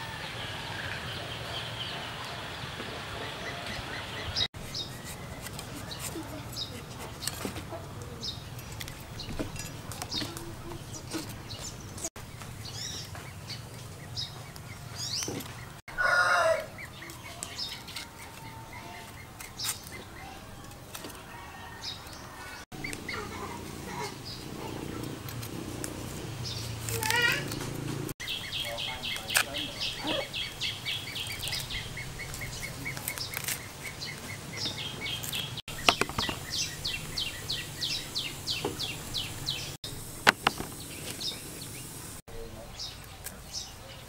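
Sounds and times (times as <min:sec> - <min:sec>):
small birds chirping: 0:00.1 - 0:44.0
loud chicken call: 0:15.9 - 0:16.8
chickens clucking: 0:22.3 - 0:26.0.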